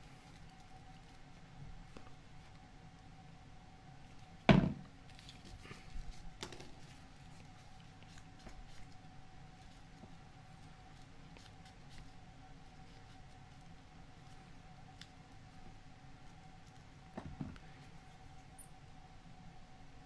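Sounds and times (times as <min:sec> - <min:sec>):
paper crackling: 0:05.0 - 0:17.1.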